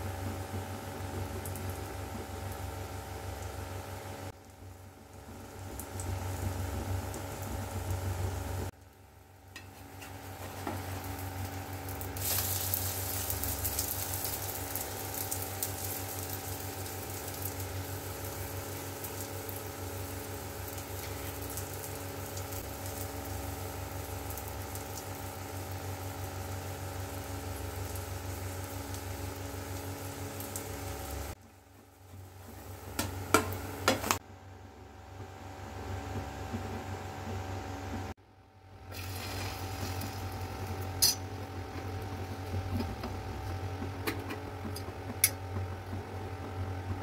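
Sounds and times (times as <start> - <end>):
steady low hum: 0.0 - 47.0
omelette sizzling in oil: 0.1 - 34.2, 38.9 - 46.6.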